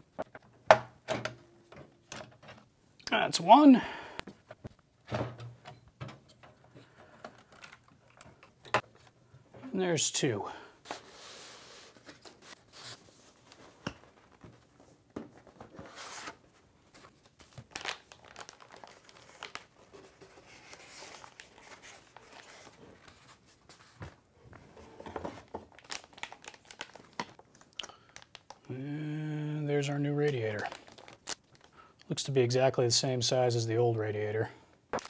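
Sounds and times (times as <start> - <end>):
plastic bag crinkling: 17.2 - 22.4, 25.7 - 28.7, 30.3 - 31.8.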